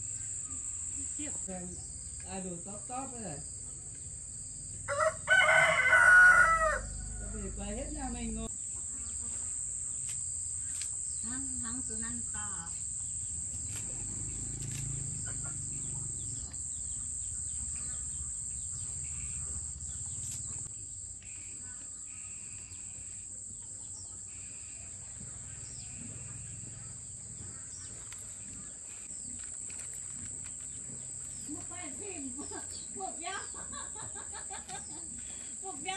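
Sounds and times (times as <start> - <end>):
insects droning: 0.0 - 35.9
short insect chirps: 8.4 - 23.3.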